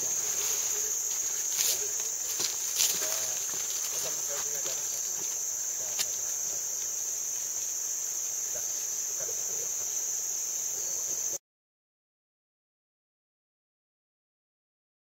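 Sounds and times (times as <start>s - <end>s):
insect chorus drone: 0.0s - 11.4s.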